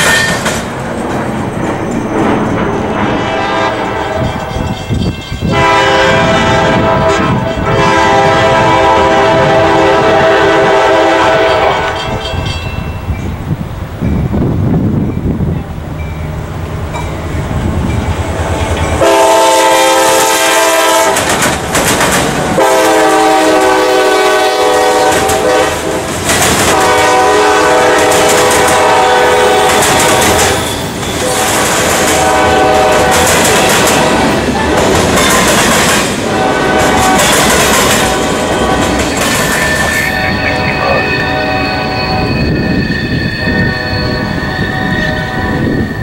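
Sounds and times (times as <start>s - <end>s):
train wheels clattering on rails: 0.0s - 13.4s, 15.0s - 46.0s
train rumble: 0.0s - 46.0s
locomotive air horn: 3.0s - 4.8s, 5.4s - 12.3s, 19.0s - 21.3s, 22.6s - 26.1s, 26.7s - 34.9s, 36.2s - 45.9s.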